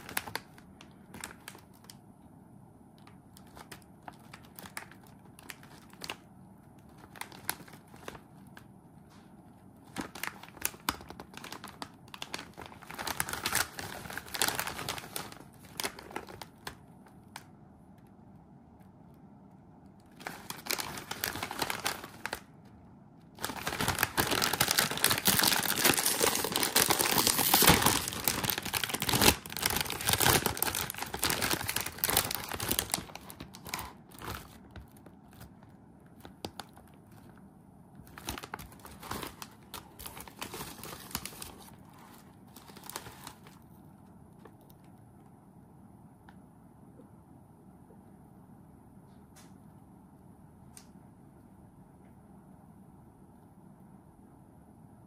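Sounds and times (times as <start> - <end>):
chip bag crinkling: 0.0 - 2.0, 3.0 - 8.7, 9.5 - 17.5, 20.0 - 22.6, 23.2 - 37.4, 38.0 - 43.7.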